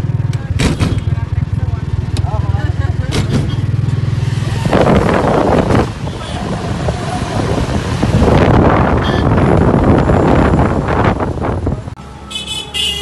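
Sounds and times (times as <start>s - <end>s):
auto-rickshaw engine running: 0.0s - 13.0s
wind buffeting microphone: 4.1s - 12.0s.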